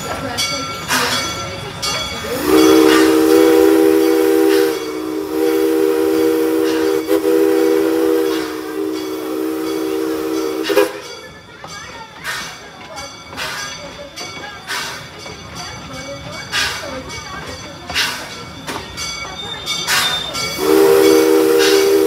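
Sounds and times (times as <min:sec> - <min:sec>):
steam locomotive chime whistle: 0:00.1 - 0:11.4, 0:17.9 - 0:22.0
steam hissing: 0:02.1 - 0:11.4, 0:12.2 - 0:15.6, 0:17.9 - 0:22.0.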